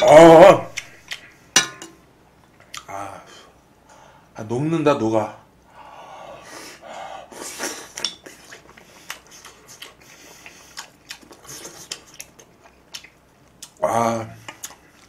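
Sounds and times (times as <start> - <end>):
person chewing: 7.3 - 13.8, 14.4 - 15.0.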